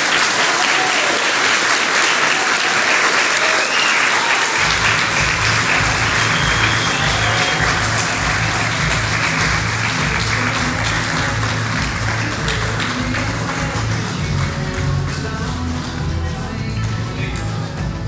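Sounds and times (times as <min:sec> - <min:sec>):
crowd applauding: 0:00.0 - 0:18.0
music with steady low beat: 0:04.6 - 0:18.0.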